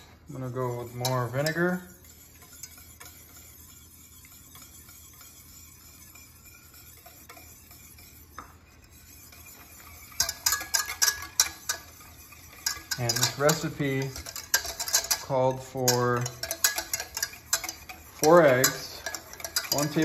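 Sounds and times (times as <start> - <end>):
whisk clattering against pan: 0.0 - 20.0
whisk swishing in a pan: 0.0 - 20.0.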